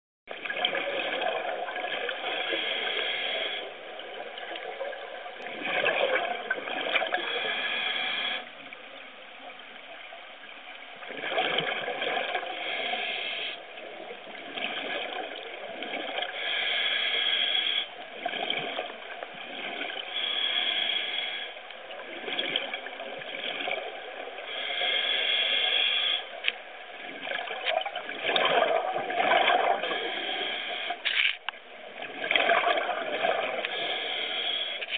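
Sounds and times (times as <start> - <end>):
gurgling exhaled bubbles: 0.3 - 2.7, 3.4 - 8.4, 11.0 - 13.2, 13.9 - 16.4, 18.1 - 20.4, 27.0 - 30.6, 31.8 - 34.0
regulator hissing inhalations: 2.4 - 3.8, 7.2 - 8.5, 12.5 - 13.6, 16.4 - 17.9, 20.1 - 21.6, 24.5 - 26.4, 33.6 - 34.9.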